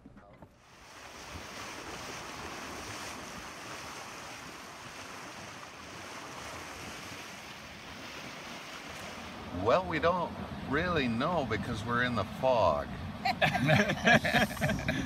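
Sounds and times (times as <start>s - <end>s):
water rushing along hull: 0.4s - 15.0s
wind on microphone: 0.6s - 9.6s, 14.0s - 15.0s.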